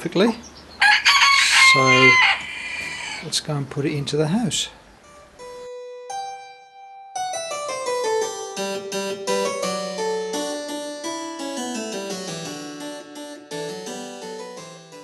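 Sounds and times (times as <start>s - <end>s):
harpsichord fugue: 4.2s - 15.0s.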